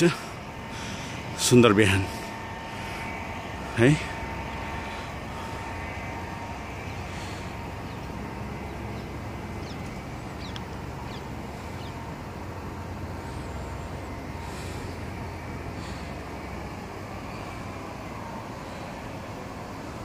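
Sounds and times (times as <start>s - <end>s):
faint steady hum: 0.0s - 20.0s
low background rumble: 0.0s - 20.0s
bird chirps: 7.8s - 12.1s.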